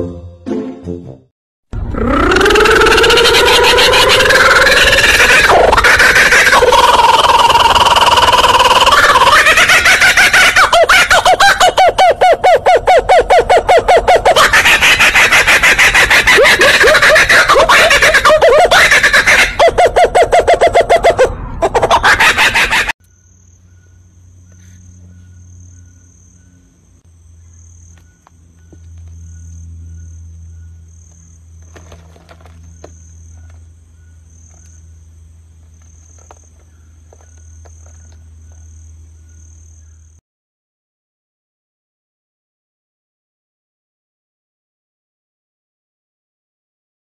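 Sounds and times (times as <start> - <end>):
insects chirping: 1.9 - 21.2, 21.8 - 40.2
kookaburra laughing call: 1.9 - 23.0
steady low hum: 23.0 - 40.2.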